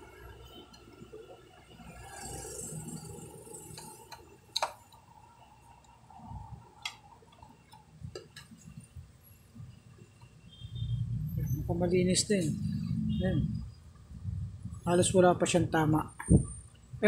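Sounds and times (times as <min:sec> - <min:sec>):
sharp clicks and light knocks: 0:03.8 - 0:05.0.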